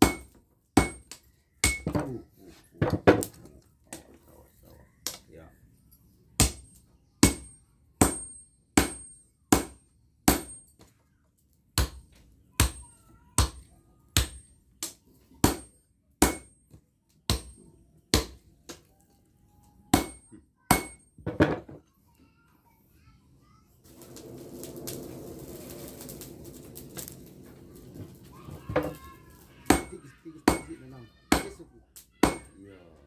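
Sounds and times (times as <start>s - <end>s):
hammer striking metal on anvil: 0.0s - 2.0s, 6.4s - 10.8s, 15.4s - 16.6s, 19.9s - 21.0s.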